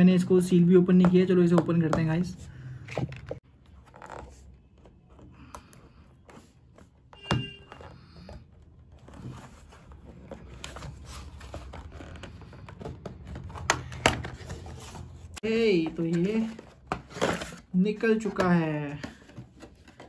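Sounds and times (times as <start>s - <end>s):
box rustling and handling: 7.8s - 20.0s.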